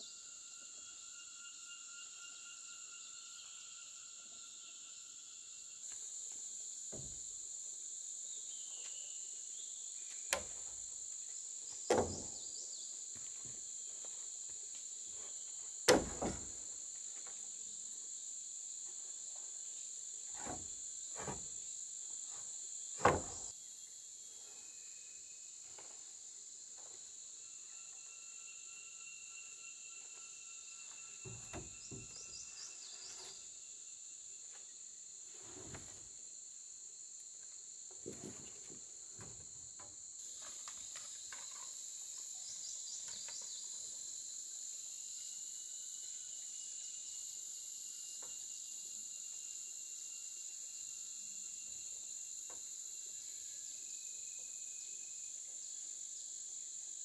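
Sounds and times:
insects chirring: 0.0 - 57.0
wooden boards knocking: 15.9 - 16.6.

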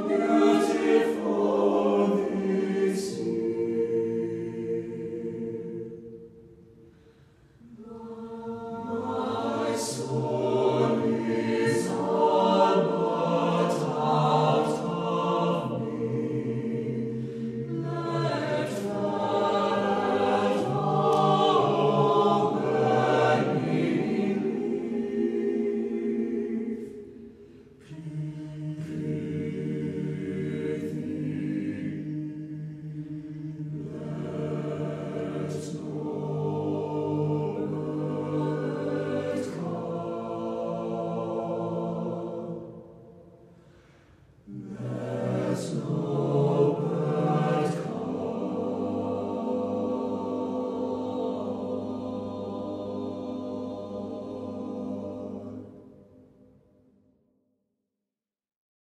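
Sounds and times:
choir singing sustained chords: 0.0 - 56.9.

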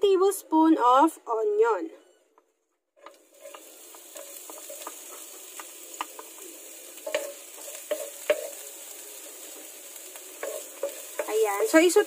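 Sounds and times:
wooden spatula scraping a pan: 3.0 - 6.4, 7.0 - 8.7, 9.4 - 12.0
onion sizzling in hot oil: 3.0 - 12.0.

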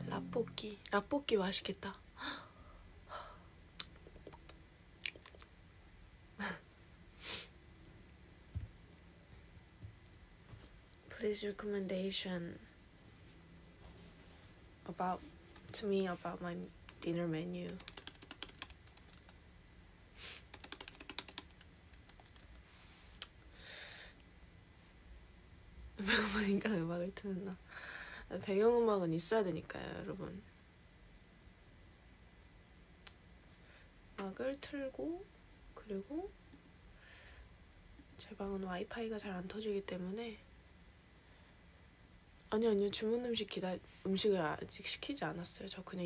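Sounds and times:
soft breaths: 27.6 - 28.3, 36.9 - 37.6.

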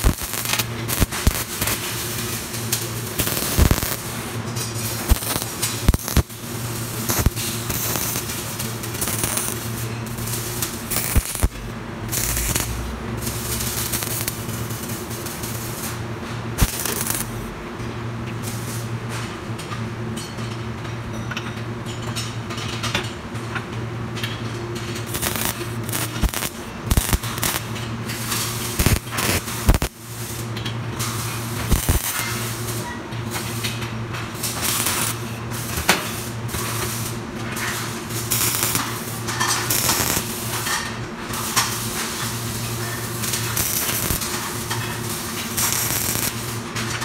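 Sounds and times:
welding arc crackling and hissing: 0.0 - 17.6, 18.4 - 19.0, 24.8 - 47.0
steady low hum: 0.0 - 18.2.

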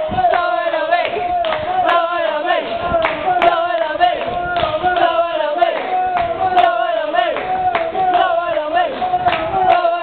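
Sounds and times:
crowd singing a chant: 0.0 - 10.0
hand claps in time: 0.3 - 2.0, 3.0 - 5.1, 5.7 - 8.3, 8.9 - 10.0.

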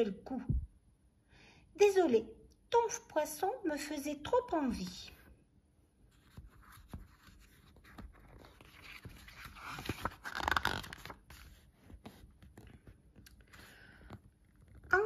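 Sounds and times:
book page turning: 6.1 - 15.0.

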